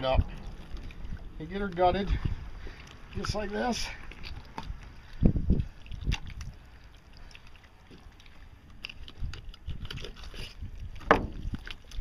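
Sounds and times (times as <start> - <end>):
wet clicks of fish guts: 4.0 - 12.0.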